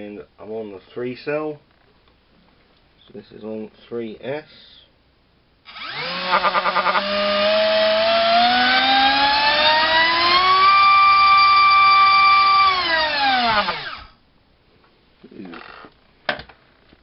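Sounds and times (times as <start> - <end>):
drone motor whining: 5.7 - 14.1.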